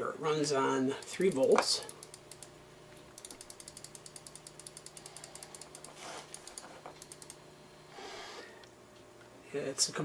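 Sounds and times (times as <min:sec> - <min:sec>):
mouse scroll wheel clicking: 0:03.2 - 0:07.4.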